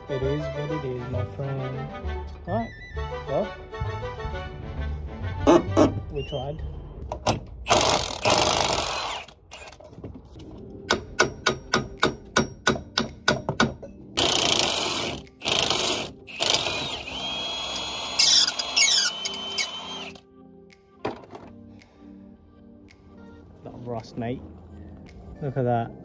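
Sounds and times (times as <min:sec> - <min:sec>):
sharp metal knocks: 0:10.9 - 0:14.5
impact wrench hammering: 0:10.9 - 0:20.2.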